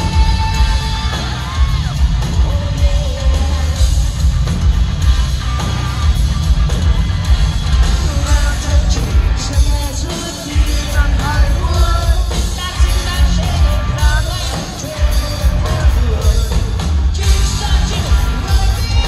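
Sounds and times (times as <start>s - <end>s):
person singing: 0.0s - 4.0s, 7.8s - 19.0s
bass guitar: 0.0s - 19.0s
distorted electric guitar: 0.0s - 19.0s
pounding drums: 0.0s - 19.0s.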